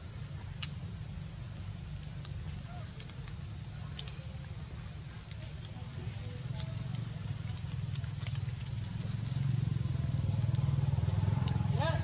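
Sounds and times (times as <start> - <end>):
low engine hum: 0.0 - 12.0
faint clicks: 1.5 - 4.5, 5.2 - 9.6, 10.4 - 10.8.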